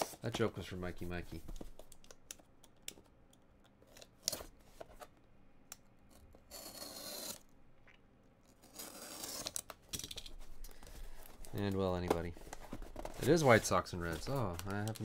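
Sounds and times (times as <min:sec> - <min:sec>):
box cutter scraping through cardboard: 0:06.5 - 0:07.4.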